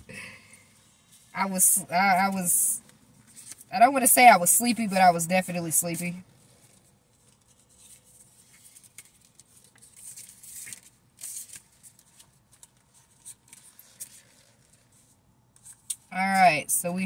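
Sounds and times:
cards being shuffled: 6.6s - 16.1s.

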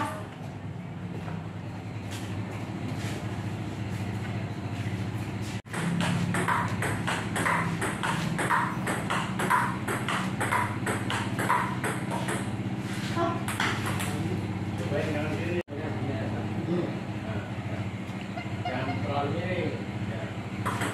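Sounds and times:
ping-pong balls clicking: 5.7s - 12.5s, 13.5s - 14.2s, 20.6s - 20.9s.

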